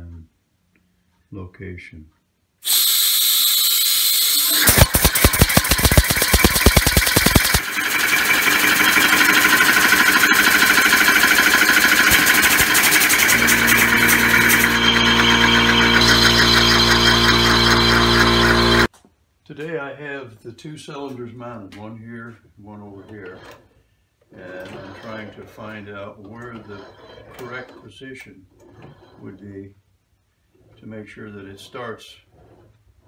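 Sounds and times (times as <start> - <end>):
fast knocking: 4.6 - 18.9
air engine hissing: 9.4 - 18.9.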